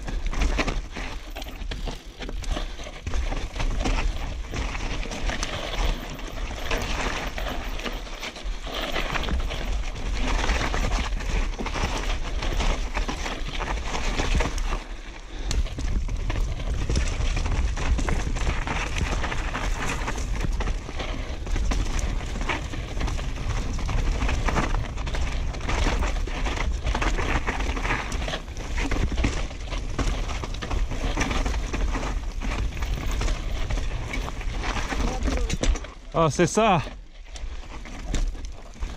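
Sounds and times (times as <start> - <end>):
bike frame and chain rattling: 0.0 - 36.1
bike tyres rolling over dirt: 0.0 - 38.9
wind rumbling on microphone: 9.0 - 35.9.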